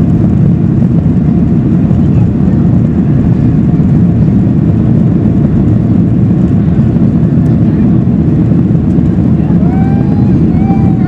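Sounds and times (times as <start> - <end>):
airplane cabin engine noise: 0.0 - 11.0.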